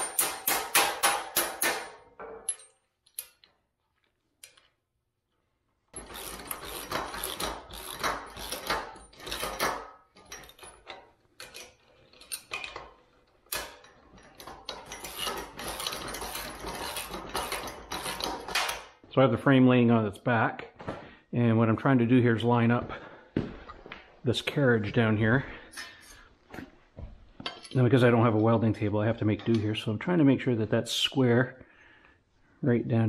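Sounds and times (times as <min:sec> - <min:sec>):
metal rail clattering: 0:06.0 - 0:18.9.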